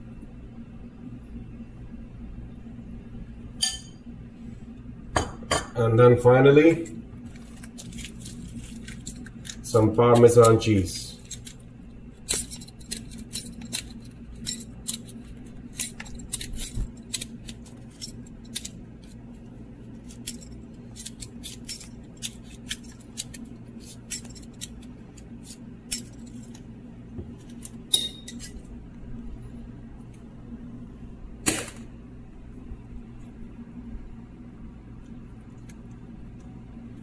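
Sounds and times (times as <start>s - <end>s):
faint low hum: 0.0s - 37.0s.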